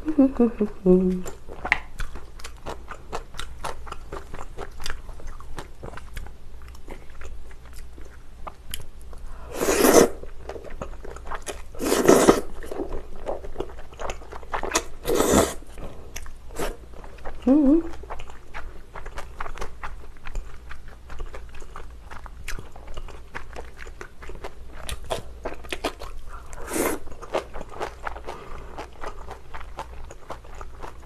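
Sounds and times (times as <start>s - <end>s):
wet chewing clicks: 1.5s - 8.9s
loud noodle slurps: 9.5s - 10.2s, 11.8s - 12.5s, 14.8s - 15.6s, 26.6s - 27.0s.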